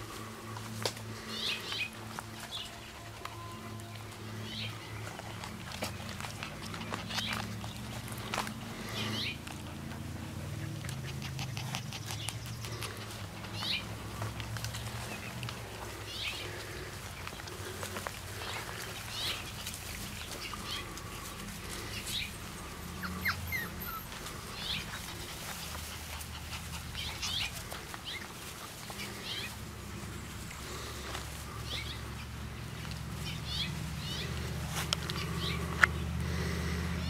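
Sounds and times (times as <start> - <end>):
puppies squeaking and yipping: 22.1 - 29.5.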